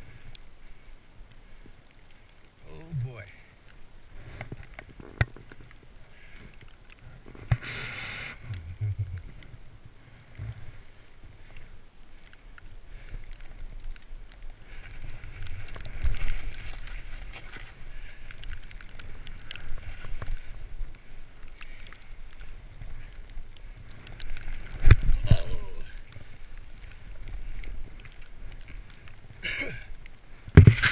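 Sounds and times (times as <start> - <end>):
skis hissing through powder snow: 14.8 - 18.0.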